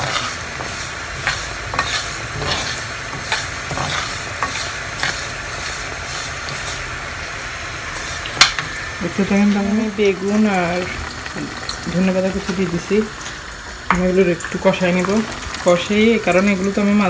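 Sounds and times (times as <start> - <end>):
metal spoon scraping a pan: 0.0 - 6.9
lentils toasting in a pan: 0.0 - 17.0.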